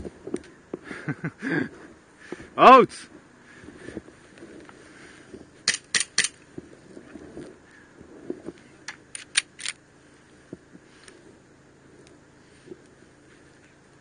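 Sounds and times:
pistol mechanical clicks: 0:05.6 - 0:06.4, 0:08.9 - 0:09.8.

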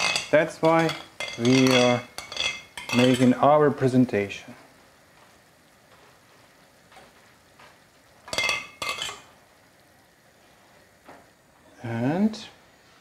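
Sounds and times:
metal spoon scraping a pan: 0:00.0 - 0:03.4, 0:08.3 - 0:09.3.

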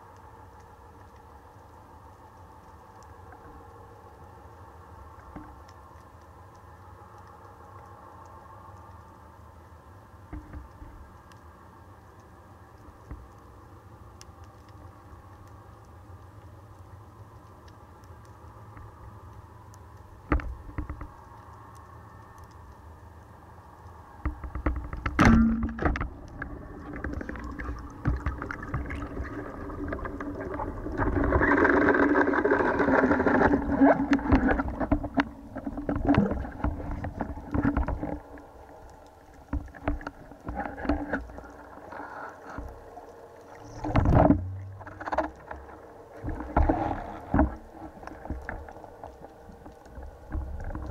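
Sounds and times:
faint underwater hum: 0:00.0 - 0:50.9
churning water: 0:24.4 - 0:50.9.

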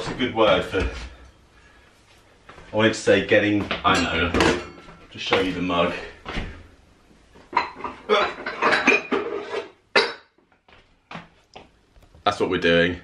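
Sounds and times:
crockery and cutlery clattering: 0:03.9 - 0:05.0, 0:07.5 - 0:10.3.

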